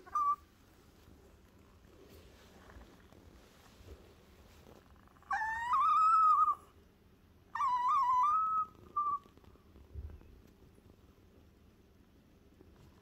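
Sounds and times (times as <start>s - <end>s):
small dog whining: 0.0s - 0.5s, 4.9s - 6.8s, 7.5s - 9.4s.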